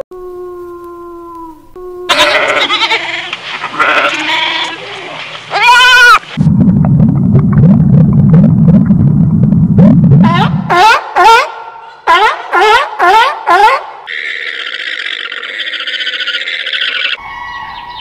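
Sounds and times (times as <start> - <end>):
goats bleating: 2.1 - 6.2
loud low rough noise: 6.3 - 10.8.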